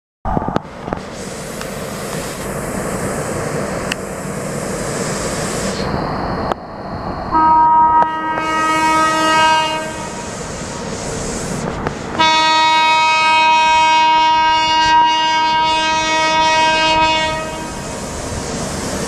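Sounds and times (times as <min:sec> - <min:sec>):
train noise: 0:00.3 - 0:19.0
locomotive horn: 0:07.3 - 0:10.2, 0:12.1 - 0:17.8.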